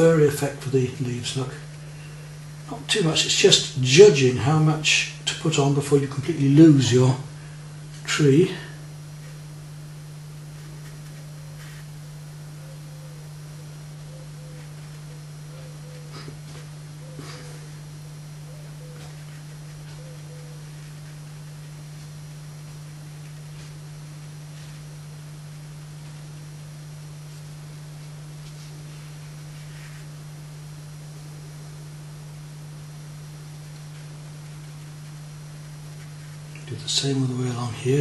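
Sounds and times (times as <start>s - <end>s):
low electrical hum: 0.0s - 38.0s.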